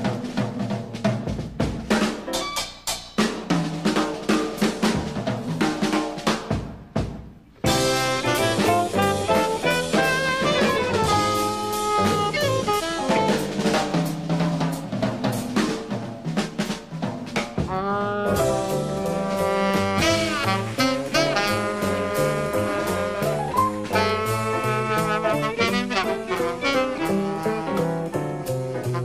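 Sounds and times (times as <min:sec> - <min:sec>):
jazz drum kit: 0:00.0 - 0:29.0
rhythm section: 0:00.0 - 0:29.0
alto saxophone swinging melody: 0:07.6 - 0:14.2, 0:17.6 - 0:29.0.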